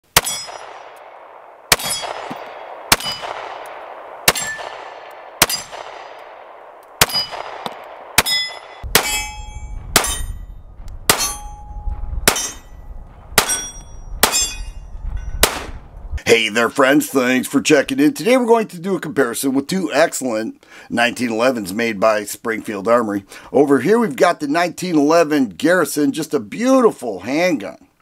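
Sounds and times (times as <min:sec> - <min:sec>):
pistol shots with ringing: 0:00.1 - 0:10.5, 0:11.1 - 0:12.8, 0:13.4 - 0:15.8
wind rumbling on microphone: 0:01.2 - 0:16.3.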